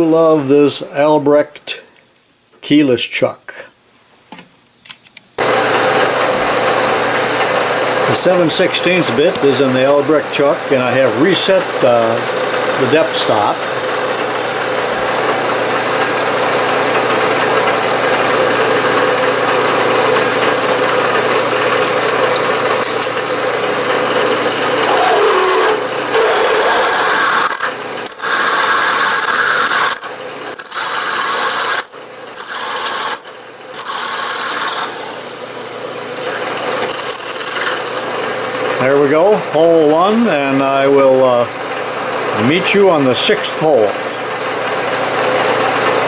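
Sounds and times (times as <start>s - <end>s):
drill cutting metal drone: 24.6s - 38.0s.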